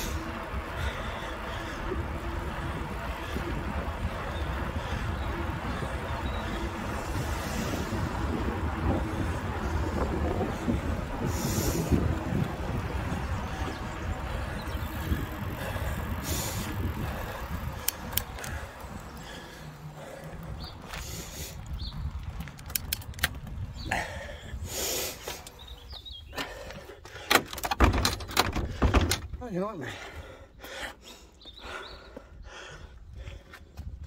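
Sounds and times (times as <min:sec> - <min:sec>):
wind on microphone: 0:00.0 - 0:19.4, 0:20.0 - 0:26.2
bicycle tyres on tarmac: 0:00.0 - 0:34.0.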